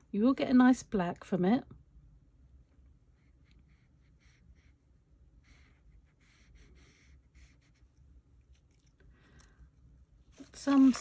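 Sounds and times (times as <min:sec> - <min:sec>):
paintbrush scratching on paper: 0:03.2 - 0:08.5.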